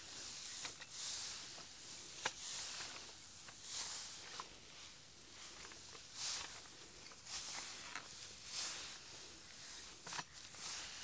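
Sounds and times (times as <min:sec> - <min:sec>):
straw rustling swishes: 0:00.0 - 0:11.0.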